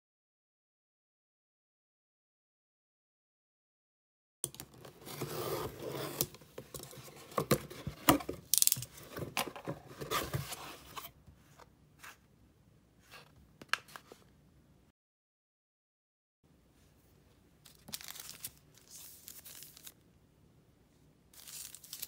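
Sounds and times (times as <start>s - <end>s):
paper envelope handled: 17.6s - 20.0s, 21.4s - 22.0s.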